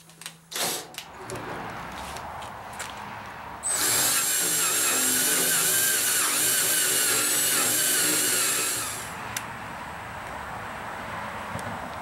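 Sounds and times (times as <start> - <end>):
power drill cutting metal: 3.6 - 9.3.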